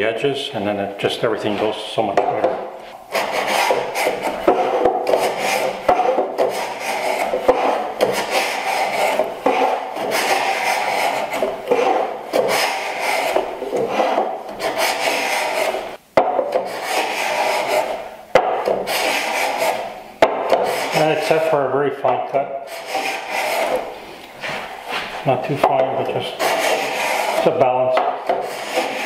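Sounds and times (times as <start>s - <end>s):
block plane shaving wood: 2.5s - 15.9s, 16.5s - 21.5s, 22.7s - 25.1s, 25.7s - 29.0s.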